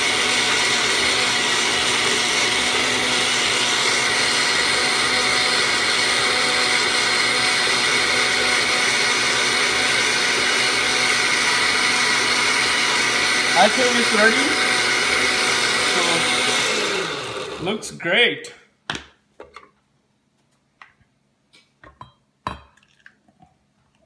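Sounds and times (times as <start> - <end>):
blender motor running: 0.0 - 17.8.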